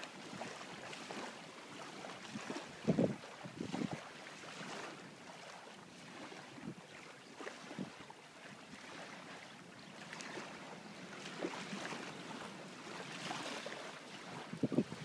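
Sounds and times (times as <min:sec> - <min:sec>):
wind rushing over microphone: 0:02.8 - 0:04.0, 0:14.4 - 0:15.0.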